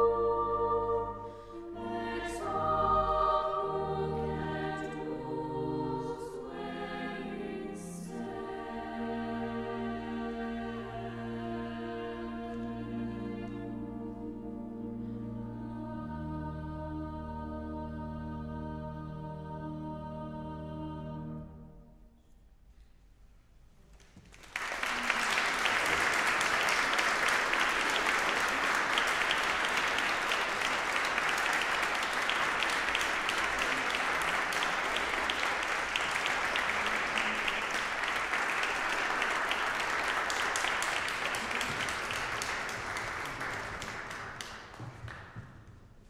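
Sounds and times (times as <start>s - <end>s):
audience applauding: 24.0s - 45.5s.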